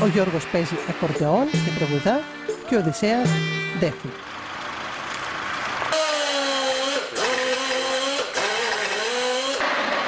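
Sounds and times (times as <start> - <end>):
air power tool whining: 5.8 - 10.0.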